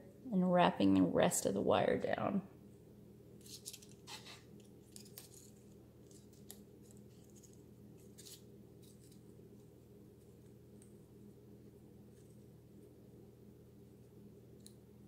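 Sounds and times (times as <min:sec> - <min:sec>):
steady low hum: 0:00.0 - 0:15.0
faint crisp ticks and rustles: 0:03.4 - 0:11.2.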